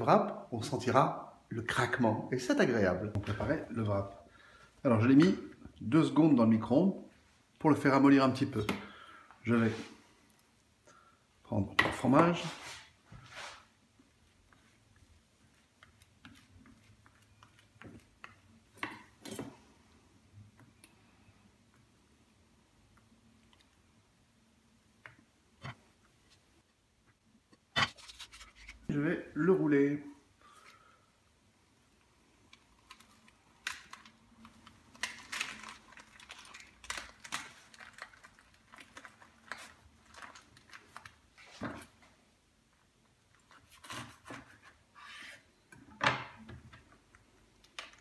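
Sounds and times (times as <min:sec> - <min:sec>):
tortilla wrap crackling and rustling: 0:32.6 - 0:41.6.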